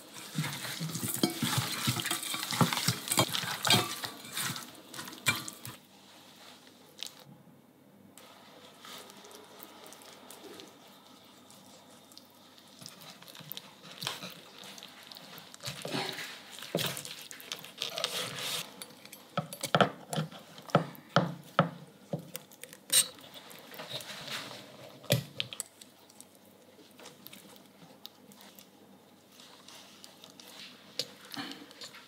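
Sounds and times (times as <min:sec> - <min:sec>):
soft handling of raw chicken: 0:00.0 - 0:07.3, 0:08.2 - 0:18.8, 0:21.9 - 0:25.0, 0:25.6 - 0:32.0.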